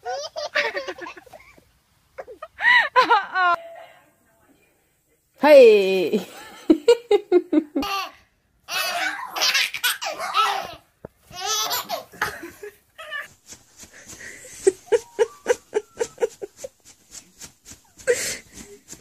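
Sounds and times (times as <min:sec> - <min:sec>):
baby laughing hard: 0:00.0 - 0:01.4, 0:07.8 - 0:13.3.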